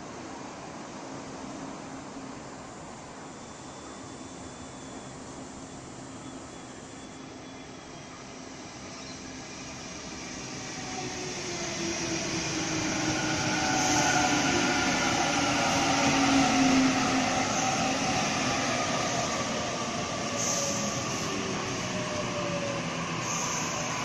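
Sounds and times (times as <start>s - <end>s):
train wheels rumbling on rails: 8.3s - 24.0s.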